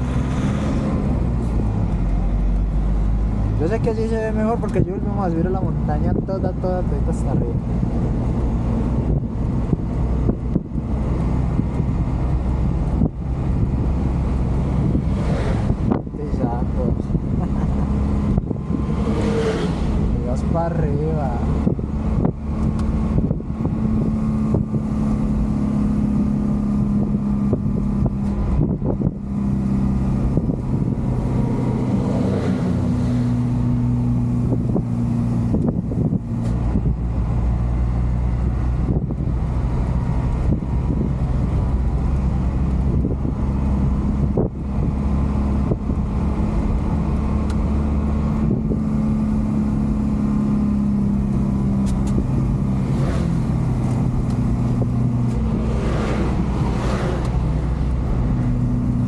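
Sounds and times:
road and wind noise: 0:00.0 - 0:59.0
truck diesel engine running: 0:00.0 - 0:59.0.

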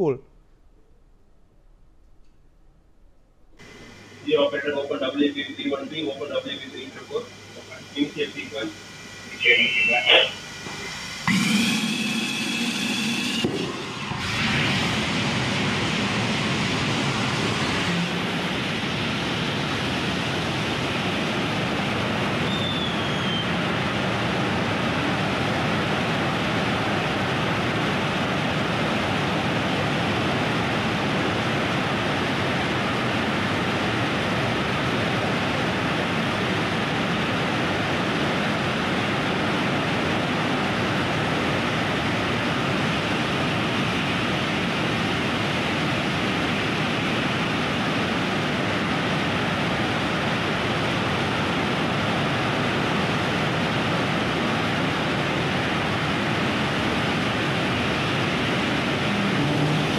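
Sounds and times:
rocket engine roaring: 0:03.6 - 0:37.6.

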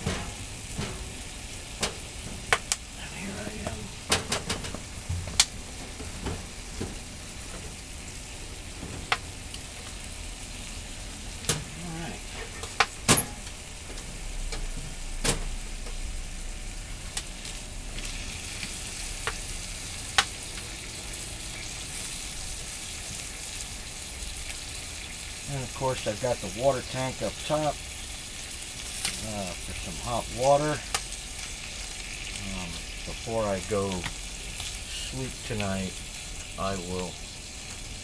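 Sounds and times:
wood popping and crackling: 0:00.0 - 0:03.0, 0:03.6 - 0:10.0, 0:17.1 - 0:20.8, 0:28.4 - 0:34.8
firewood burning in a stove: 0:00.0 - 0:38.0.

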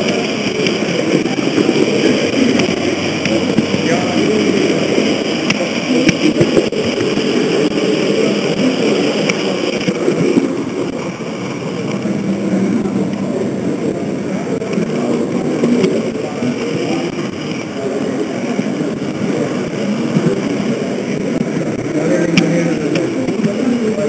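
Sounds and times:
model train motor droning: 0:00.0 - 0:24.0
thin high whine: 0:00.0 - 0:24.0.

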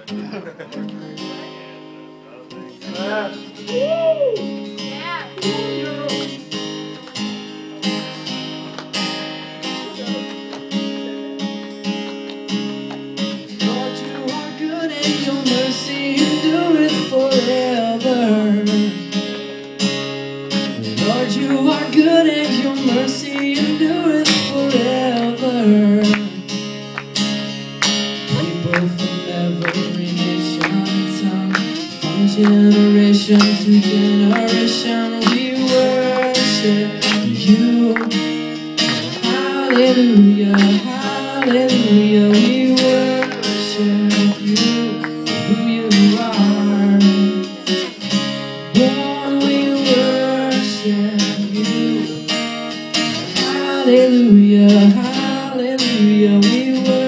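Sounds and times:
acoustic guitar strumming: 0:00.0 - 0:57.0
person singing: 0:02.5 - 0:06.6, 0:13.4 - 0:19.5, 0:20.7 - 0:26.6, 0:28.2 - 0:48.0, 0:48.7 - 0:52.4, 0:53.2 - 0:57.0.

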